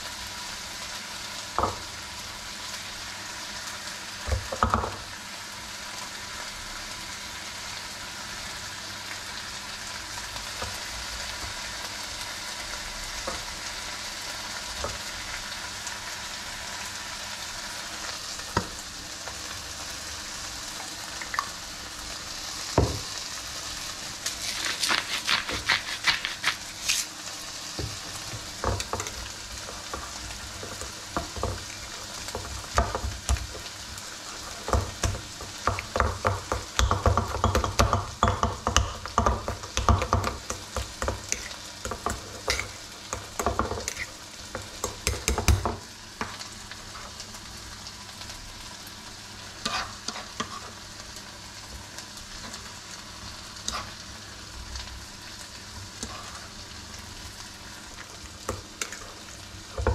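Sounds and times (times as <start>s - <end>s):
spoon scraping metal bowl: 24.3s - 27.1s, 43.5s - 44.2s.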